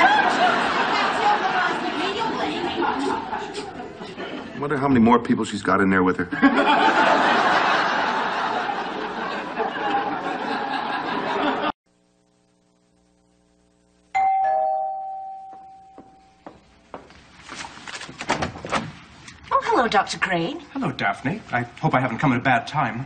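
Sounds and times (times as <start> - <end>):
studio audience laughing: 0.0 - 4.8, 6.3 - 11.8
doorbell ding-dong chime: 14.2 - 16.4.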